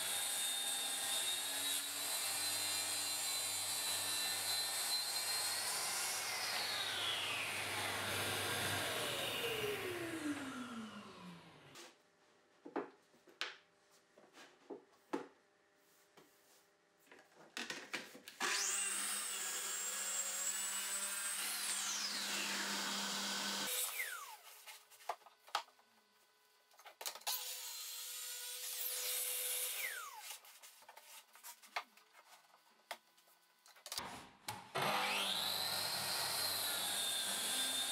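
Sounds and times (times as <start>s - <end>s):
track saw cutting plywood: 0.0s - 11.6s, 18.4s - 24.4s, 34.7s - 37.9s.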